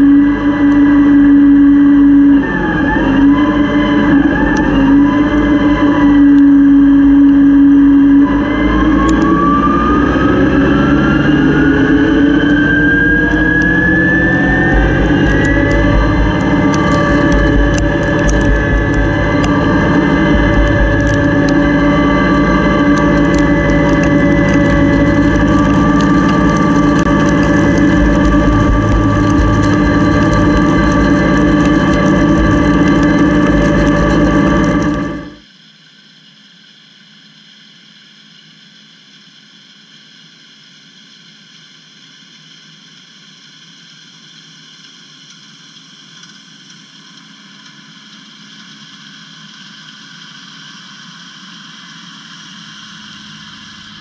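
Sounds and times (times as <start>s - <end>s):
harvester machinery whine: 0.0s - 35.5s, 47.0s - 54.0s.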